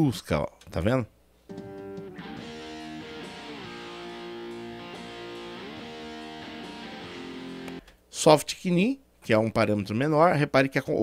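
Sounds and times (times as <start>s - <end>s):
electric guitar chords: 1.5s - 7.9s.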